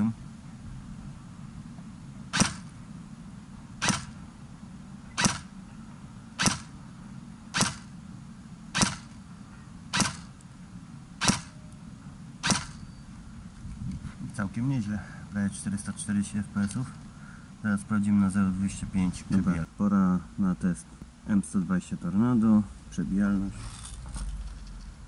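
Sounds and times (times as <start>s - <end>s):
airsoft rifle shots: 2.3s - 2.8s, 3.8s - 4.2s, 5.2s - 5.6s, 6.4s - 6.8s, 7.5s - 8.0s, 8.7s - 9.2s, 9.9s - 10.4s, 11.2s - 11.6s, 12.4s - 12.8s.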